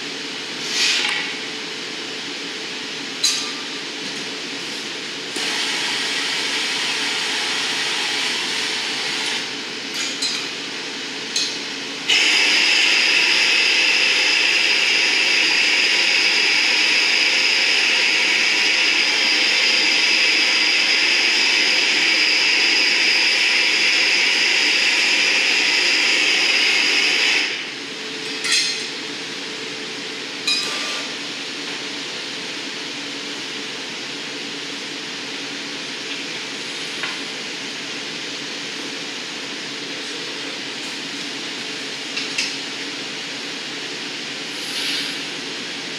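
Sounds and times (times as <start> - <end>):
tools clinking on glass: 3.2 - 3.7, 10.0 - 10.5, 28.3 - 28.9, 30.5 - 31.0
torch flame hissing: 4.6 - 9.7, 12.0 - 27.8, 44.4 - 45.5.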